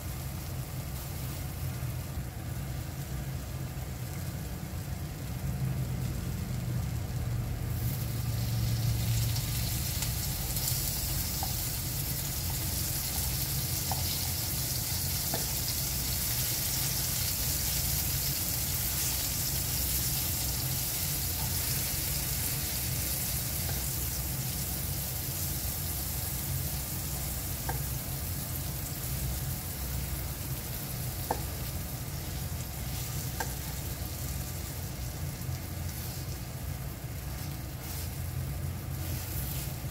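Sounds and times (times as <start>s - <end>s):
pancakes sizzling in frying pan: 0.0s - 39.9s
spatula clicking against pan: 27.6s - 27.9s, 33.3s - 33.6s.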